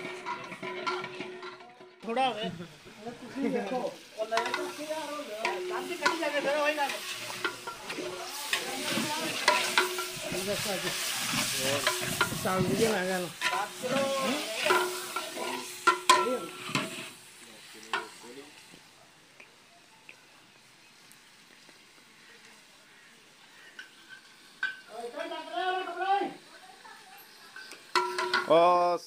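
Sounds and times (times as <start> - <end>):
metal ladle scraping pot: 0.0 - 2.0, 4.0 - 17.2
food sizzling in oil: 0.0 - 29.0.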